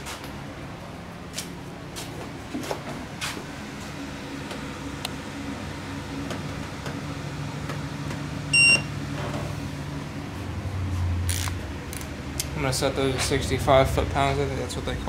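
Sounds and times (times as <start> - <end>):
low machine hum: 0.0 - 15.0
short high electronic beep: 8.6 - 8.9.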